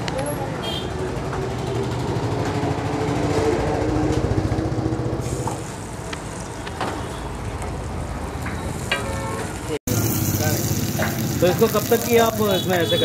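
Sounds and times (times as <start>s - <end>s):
traffic engine hum: 0.0s - 13.0s
onion sizzling in hot oil: 9.9s - 13.0s.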